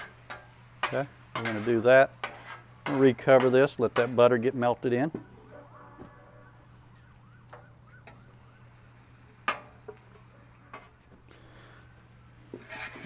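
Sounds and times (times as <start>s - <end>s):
food sizzling on griddle: 0.0s - 5.2s, 7.9s - 11.7s, 12.5s - 13.0s.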